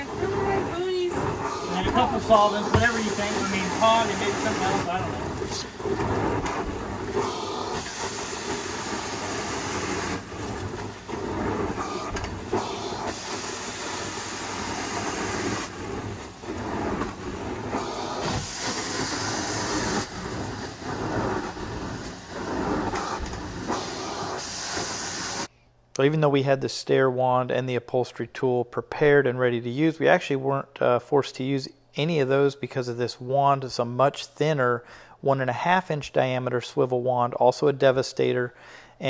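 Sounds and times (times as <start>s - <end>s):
carpet cleaning wand suction hiss: 0.0s - 25.5s.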